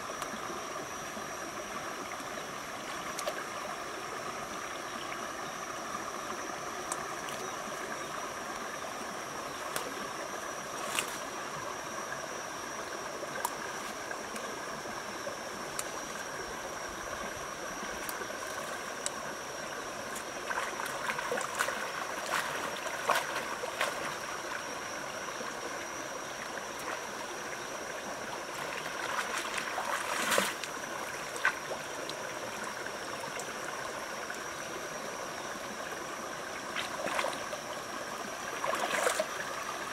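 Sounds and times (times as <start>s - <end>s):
rocky stream running: 0.0s - 39.9s
water splashing: 20.0s - 24.6s, 28.4s - 31.8s, 36.7s - 37.7s, 38.5s - 39.9s.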